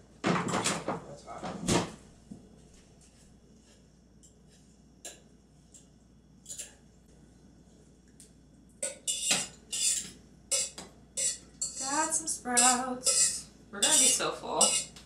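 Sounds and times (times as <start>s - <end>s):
metal utensil scraping a pot: 8.8s - 15.0s.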